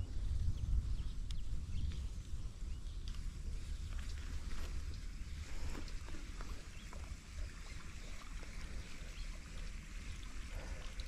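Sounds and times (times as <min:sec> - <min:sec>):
faint steady hiss: 0:00.0 - 0:11.0
wind rumbling on microphone: 0:00.0 - 0:11.0
small ticks: 0:02.9 - 0:03.3.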